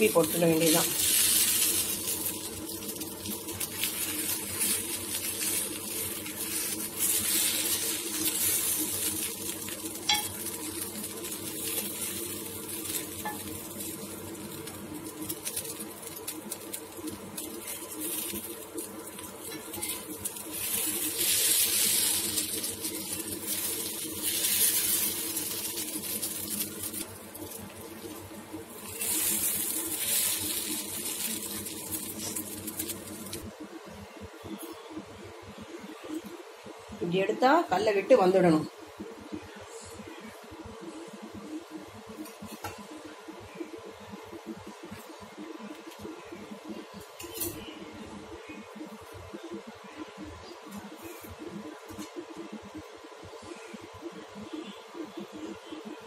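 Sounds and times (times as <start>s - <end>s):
batter sizzling in oil: 0.0s - 56.0s.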